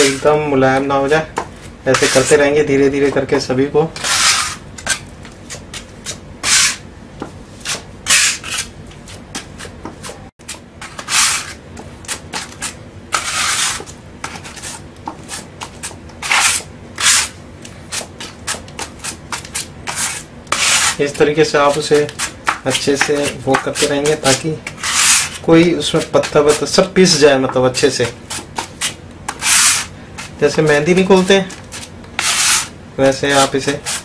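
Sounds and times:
putty knife scraping a floor: 0.0 - 0.3, 1.9 - 2.4, 4.0 - 6.8, 7.6 - 26.7, 28.0 - 34.0.

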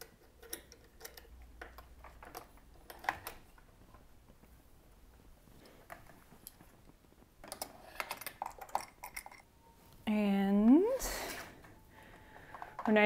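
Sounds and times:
light clicks and knocks of clamps: 0.0 - 3.6.

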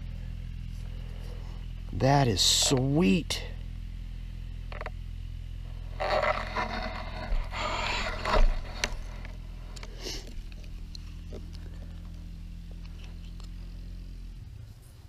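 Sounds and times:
steady low hum: 0.0 - 15.0
scraping and rustling: 5.7 - 12.0.

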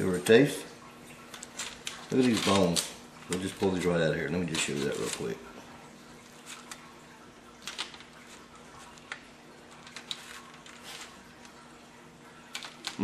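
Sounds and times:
faint steady hum: 0.0 - 13.0
foil crinkling: 1.3 - 5.4, 7.6 - 11.7.

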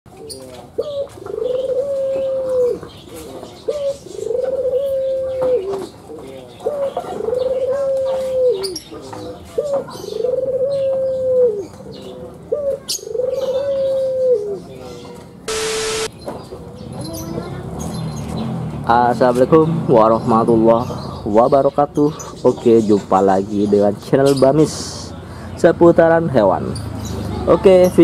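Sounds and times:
small birds chirping: 0.1 - 28.0
dove cooing: 0.2 - 8.8, 9.4 - 14.7.

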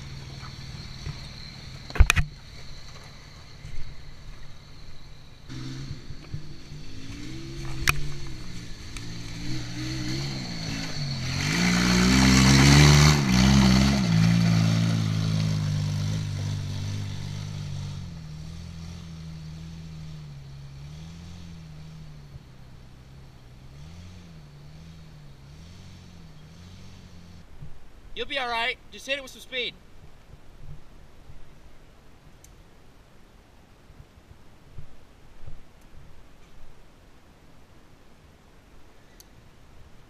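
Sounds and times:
off-road car engine revving: 0.0 - 4.0, 4.6 - 27.5
tyres on gravel: 0.0 - 4.8, 5.5 - 17.6.

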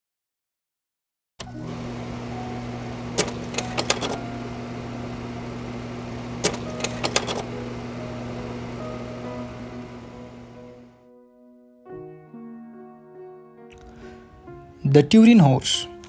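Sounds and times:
steady low hum: 1.6 - 11.0
sharp clicks: 6.4 - 7.5.

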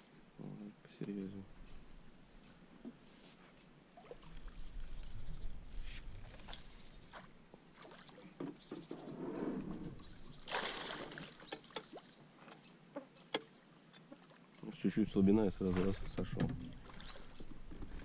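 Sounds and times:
water sloshing against boat hull: 4.0 - 12.6, 15.2 - 18.0.

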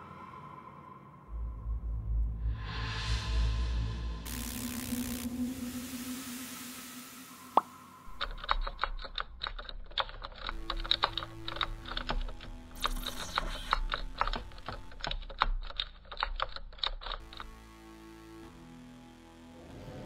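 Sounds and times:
typing on laptop keyboard: 8.1 - 17.5.

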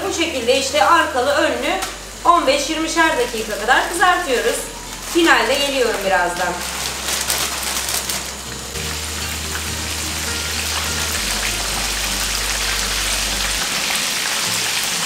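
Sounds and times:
chicken deep-frying in oil: 0.0 - 15.0
low background music: 0.0 - 15.0.

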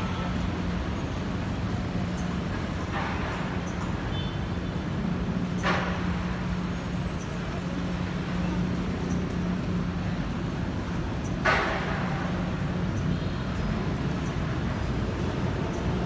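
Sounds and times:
street traffic hum: 0.0 - 16.0.

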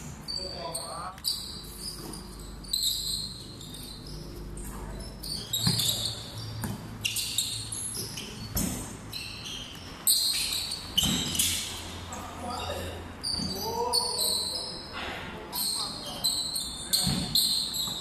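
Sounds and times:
sneakers squeaking: 0.0 - 18.0
basketball bouncing on concrete: 5.5 - 6.0, 6.6 - 6.9.

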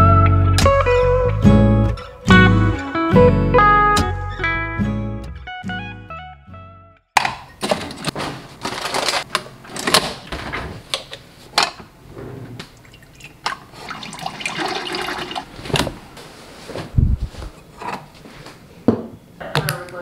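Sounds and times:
liquid pouring into mug: 12.8 - 15.5
coffee maker brewing into mug: 13.8 - 15.5.

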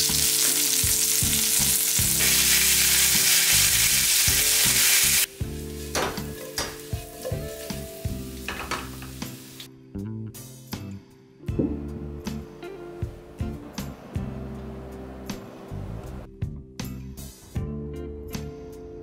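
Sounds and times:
potatoes frying with crackling pops: 0.0 - 9.7
steak sizzling in a pan: 0.0 - 9.7
soft background music: 0.0 - 19.0.

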